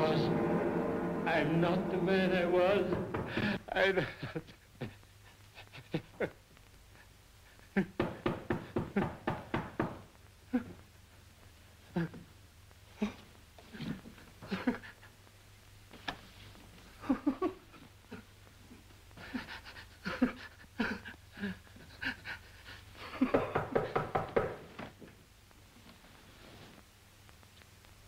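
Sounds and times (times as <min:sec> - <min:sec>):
old man laughing: 0:17.0 - 0:18.2, 0:19.2 - 0:22.2
old man panting: 0:19.2 - 0:23.2.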